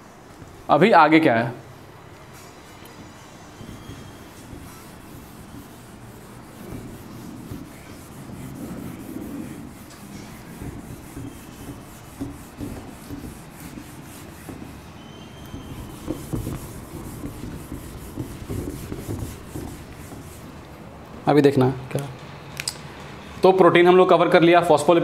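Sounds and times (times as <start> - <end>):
whiteboard duster scraping whiteboard: 3.0 - 20.6.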